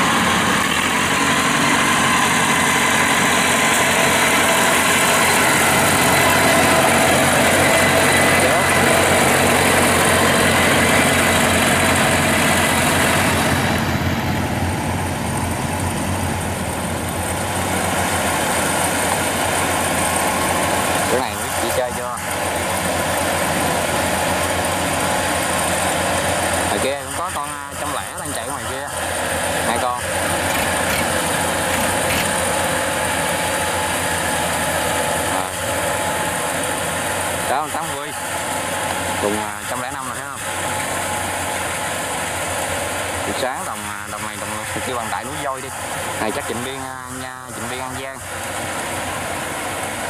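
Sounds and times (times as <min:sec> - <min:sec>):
combine harvester drone: 0:00.0 - 0:50.0
diesel engines humming: 0:00.0 - 0:50.0
high machine whine: 0:00.0 - 0:50.0.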